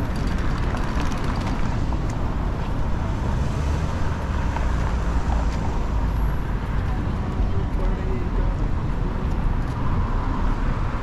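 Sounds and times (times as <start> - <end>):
city street traffic rumble: 0.0 - 11.0.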